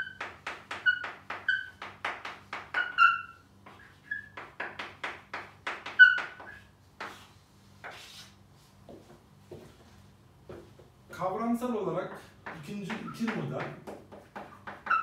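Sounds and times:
chalk squeaking: 0.0s - 8.4s, 12.1s - 15.0s
chalk tapping on a blackboard: 0.0s - 9.7s, 12.1s - 15.0s.

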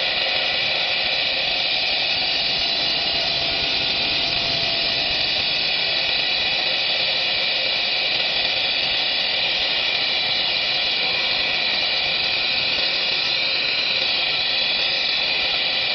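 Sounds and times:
milling machine whirring hiss: 0.0s - 15.9s.

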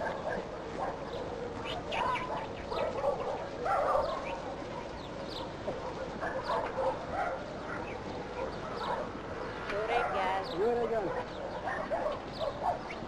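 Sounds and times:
flock animal calls: 0.0s - 7.0s
small birds chirping: 0.0s - 13.0s.

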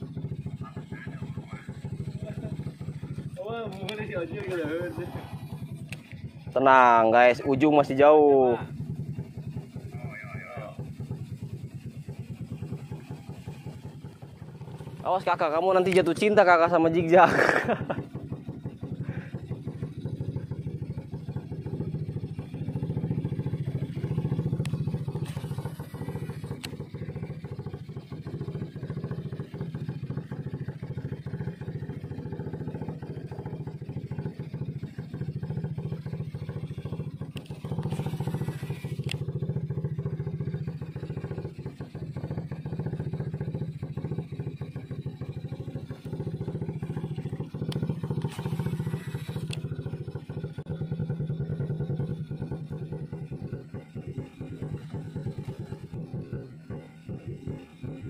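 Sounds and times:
small boat engine running: 0.0s - 58.0s.

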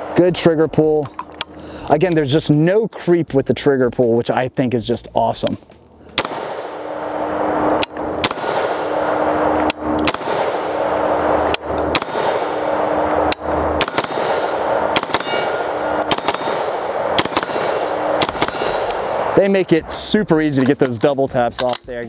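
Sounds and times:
steady ringing tone: 6.2s - 19.4s
rifle shots in double taps: 13.8s - 14.4s, 15.0s - 19.1s.

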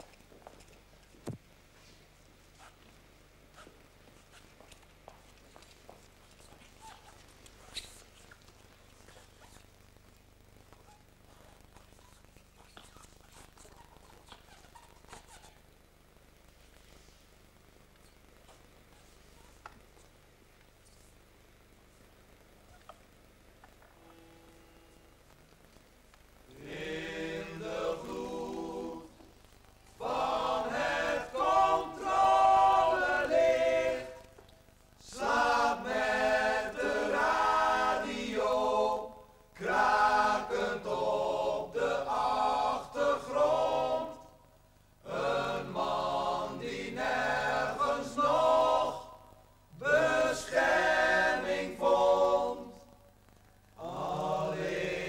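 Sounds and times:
men singing a cappella: 26.5s - 29.2s, 30.0s - 34.2s, 35.0s - 44.3s, 45.0s - 49.1s, 49.8s - 52.8s, 53.8s - 55.0s.

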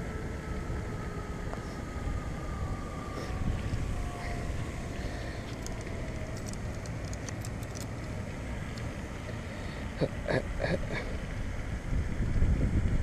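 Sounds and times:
wind on microphone: 1.5s - 5.0s, 10.9s - 13.0s.

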